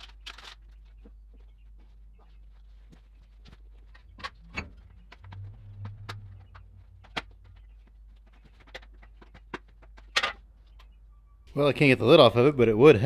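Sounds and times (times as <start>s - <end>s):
low hum: 3.5s - 9.2s.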